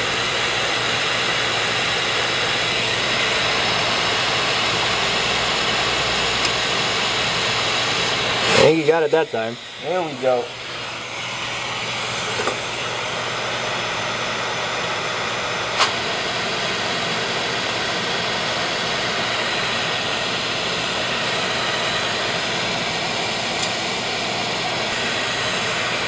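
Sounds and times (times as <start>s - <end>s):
laser welder hissing rush: 0.0s - 26.0s.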